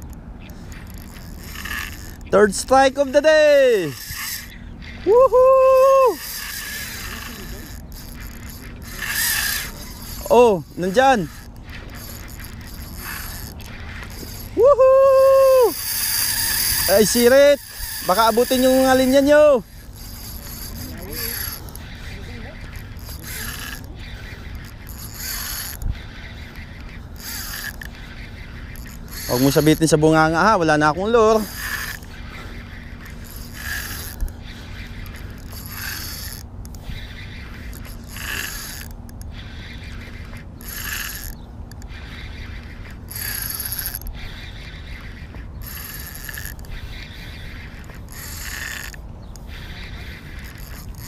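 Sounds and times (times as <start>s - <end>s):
fishing reel whirring: 0.0s - 51.0s
low steady rumble: 0.0s - 51.0s
loud high buzzing bursts: 0.6s - 51.0s.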